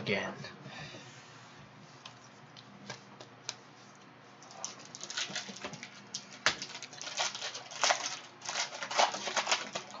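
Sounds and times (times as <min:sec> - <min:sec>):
card pack wrapper crinkling: 0:04.8 - 0:10.0.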